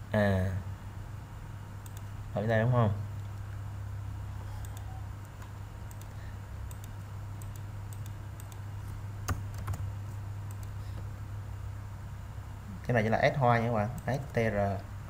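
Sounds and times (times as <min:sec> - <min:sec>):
low steady hum: 0:00.0 - 0:15.0
keyboard keystrokes: 0:09.3 - 0:09.8.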